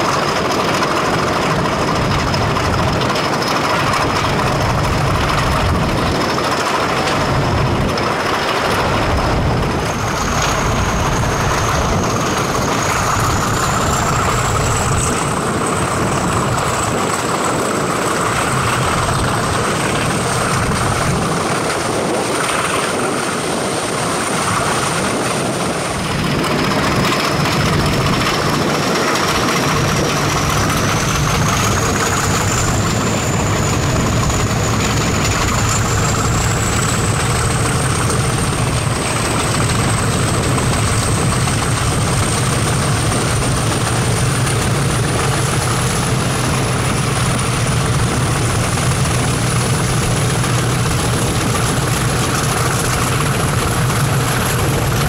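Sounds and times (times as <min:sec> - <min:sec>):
diesel locomotive engine drone: 0:00.0 - 0:55.0
train running noise: 0:00.0 - 0:55.0
wind: 0:00.0 - 0:55.0.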